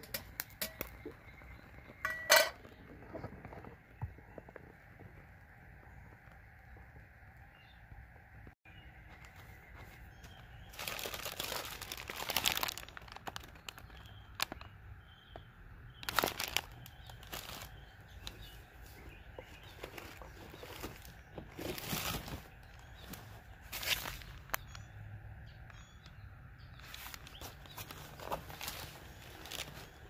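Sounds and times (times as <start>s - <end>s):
plastic bag crinkling: 10.7s - 14.7s, 16.0s - 19.0s, 19.6s - 24.8s, 26.8s - 30.0s.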